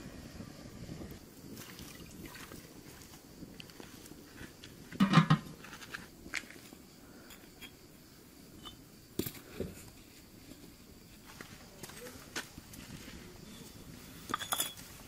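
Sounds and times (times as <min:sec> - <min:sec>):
metal tray clattering on pot: 0:05.0 - 0:05.5
bricks knocking on ground: 0:05.0 - 0:05.8.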